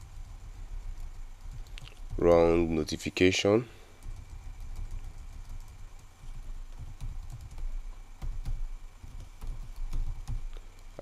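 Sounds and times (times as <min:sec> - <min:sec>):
low background hum: 0:00.0 - 0:11.0
keyboard key clicks: 0:04.0 - 0:10.6.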